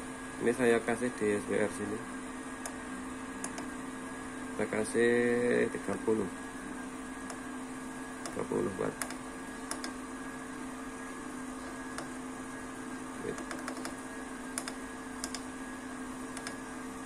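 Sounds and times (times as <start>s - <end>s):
steady low hum: 0.0s - 17.0s
push-buttons clicking: 3.4s - 3.7s, 9.0s - 10.0s, 14.6s - 15.5s, 16.3s - 16.6s.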